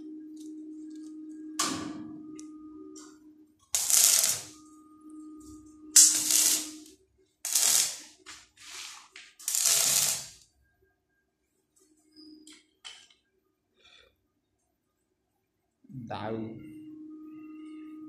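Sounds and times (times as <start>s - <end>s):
arc welding crackling sizzle: 3.7s - 4.6s, 5.9s - 10.5s.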